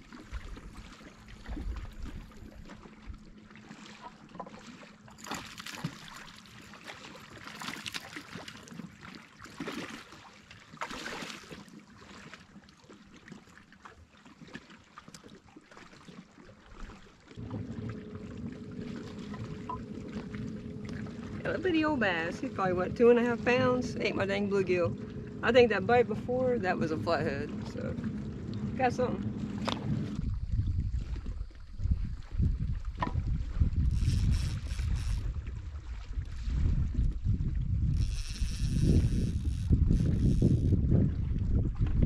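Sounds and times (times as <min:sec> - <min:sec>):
wind: 0:00.0 - 0:42.0
splashy rushes of water: 0:04.6 - 0:12.5
waves lapping on rocks: 0:04.7 - 0:12.5, 0:17.4 - 0:30.2
low hum: 0:17.4 - 0:42.0.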